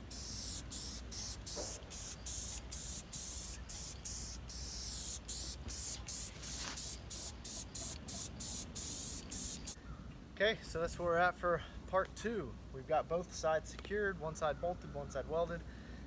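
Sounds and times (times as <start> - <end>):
spray paint can hissing: 0.0 - 9.8.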